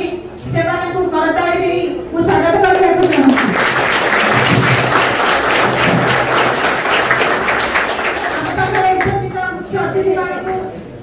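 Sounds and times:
children clapping: 2.6 - 9.2.

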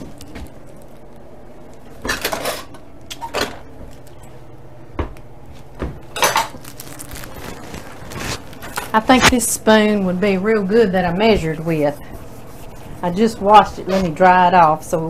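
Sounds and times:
metal utensils and dishes clattering: 6.2 - 6.6.

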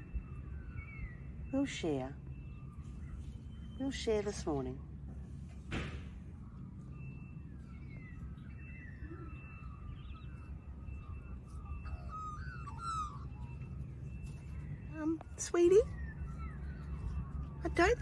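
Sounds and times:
bird chirps and whistles: 6.8 - 18.0.

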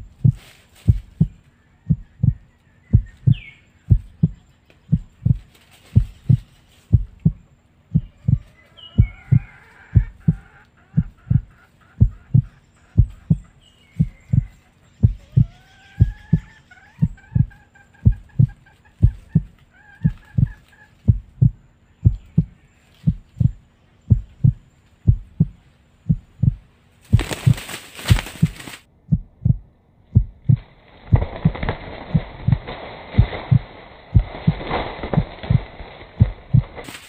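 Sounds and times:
heartbeat thumps: 0.0 - 36.9
wings flapping: 0.1 - 7.4, 14.0 - 21.5, 27.0 - 28.9, 30.4 - 37.0
rustling in dry leaves: 0.3 - 1.6, 4.6 - 6.9, 27.0 - 28.9, 30.6 - 37.0
rooster calling: 8.0 - 21.5.

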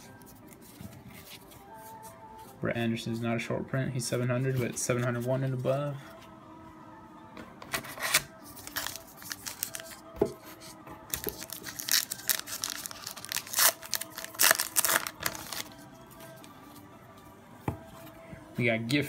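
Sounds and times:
card pack wrapper tearing: 8.0 - 10.0, 11.3 - 15.8.

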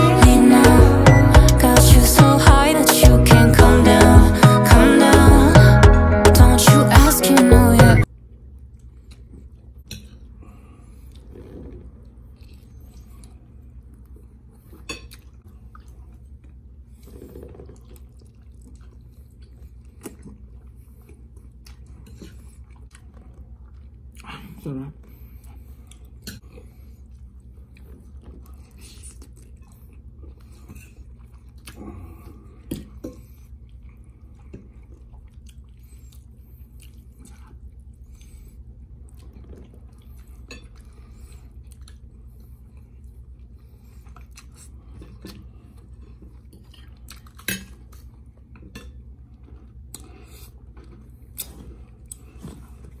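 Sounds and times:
low hum: 0.0 - 8.4
chewing: 8.6 - 53.0.

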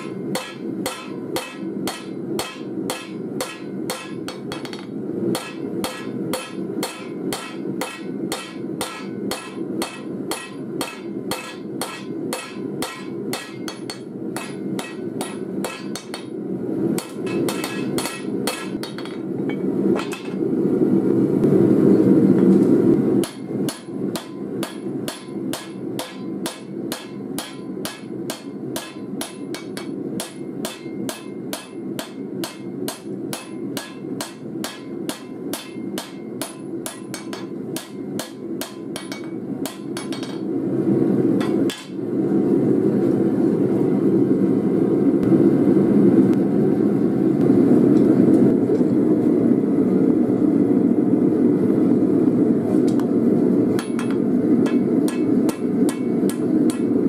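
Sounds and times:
hammer ringing on anvil: 0.0 - 16.4, 17.0 - 20.4, 23.2 - 40.5, 41.4 - 42.0, 53.8 - 56.9
gas forge burner roar: 0.0 - 57.0.

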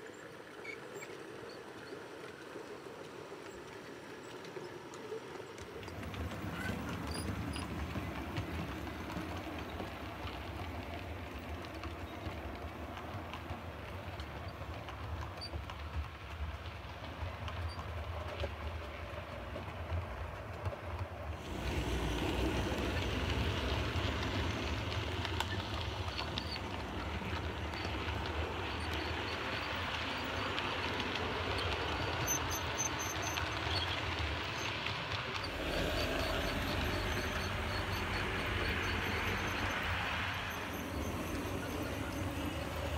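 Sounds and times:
model train whirring on track: 0.0 - 42.9.

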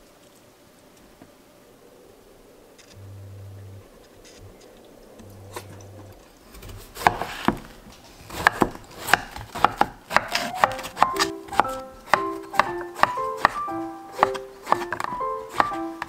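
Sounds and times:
knife chopping on wooden board: 7.0 - 7.6, 8.3 - 16.0.

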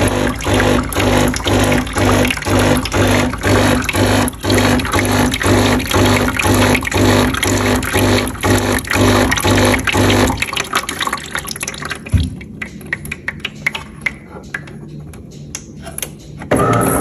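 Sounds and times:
water trickling into drip tray: 0.0 - 15.5.

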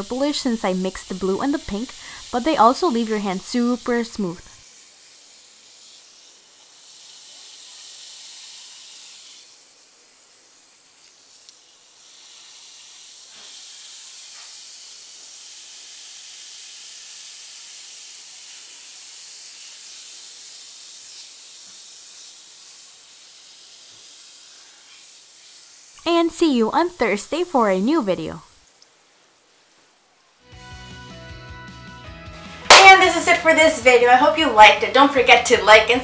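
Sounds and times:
bath bomb fizzing in water: 0.0 - 26.9.

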